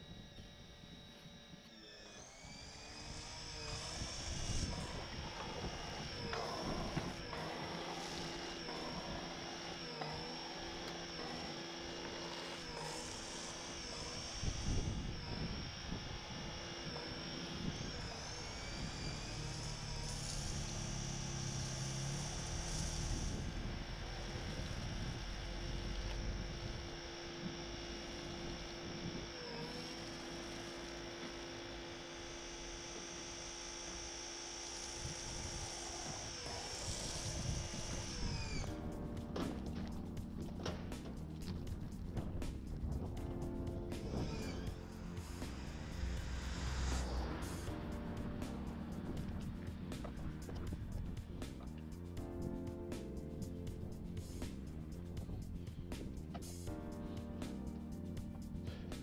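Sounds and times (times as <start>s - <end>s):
pressure washer motor hum: 0.0s - 59.0s
spray hiss: 33.9s - 59.0s.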